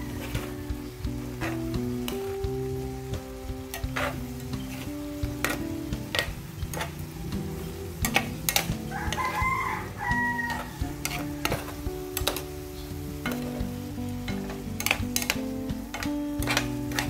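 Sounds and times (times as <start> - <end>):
rooster crowing: 0.0 - 1.1, 8.8 - 11.9
metal spatula scraping a pan: 0.0 - 2.8, 3.6 - 17.0
sauce sizzling: 0.0 - 17.0.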